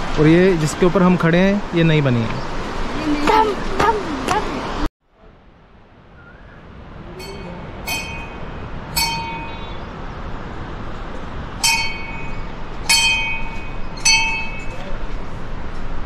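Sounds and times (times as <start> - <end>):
small metal bell ringing: 7.2 - 9.8, 11.6 - 15.0.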